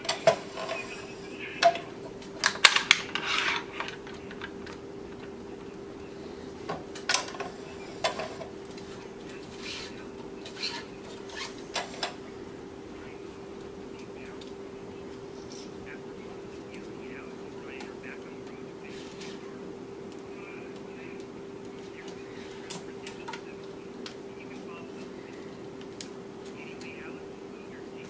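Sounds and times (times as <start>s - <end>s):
faint steady hum: 0.0s - 28.0s
stringing machine clicks and clacks: 6.6s - 12.2s.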